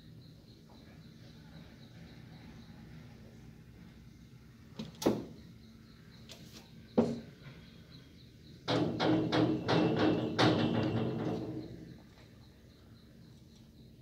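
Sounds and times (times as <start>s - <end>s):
knocks on window glass and grille: 8.7s - 11.8s.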